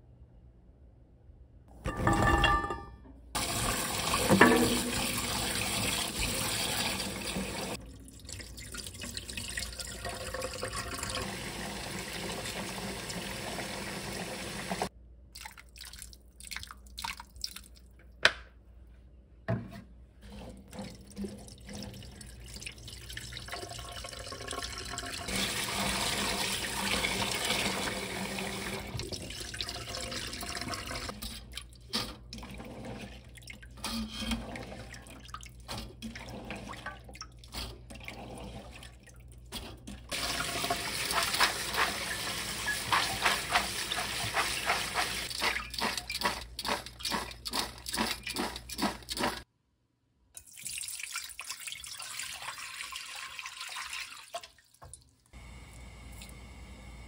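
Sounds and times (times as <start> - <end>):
tap water running into steel bowl: 3.4 - 14.9, 40.1 - 49.4
water dripping: 7.7 - 11.2, 15.3 - 18.2, 50.4 - 55.4.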